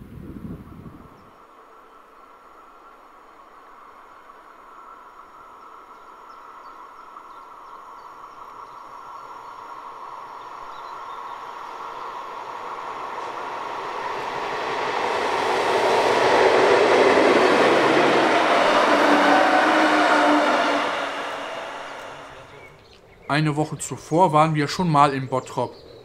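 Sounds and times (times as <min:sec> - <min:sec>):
diesel locomotive passing: 0:09.0 - 0:22.8.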